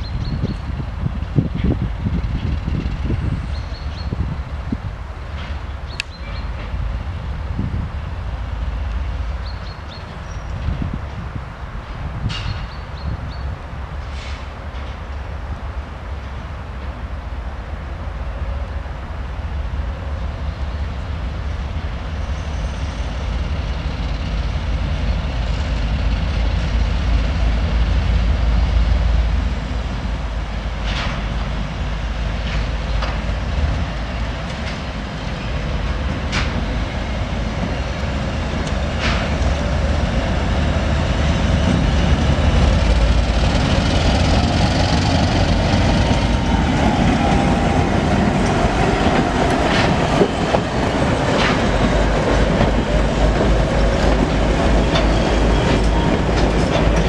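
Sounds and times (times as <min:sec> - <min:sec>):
diesel locomotive rumble: 0:00.0 - 0:57.0.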